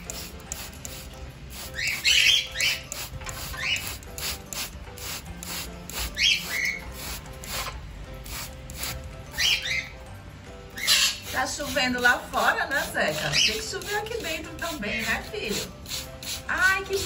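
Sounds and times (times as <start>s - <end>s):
spray bottle squirting mist: 0.0s - 9.0s, 10.9s - 17.0s.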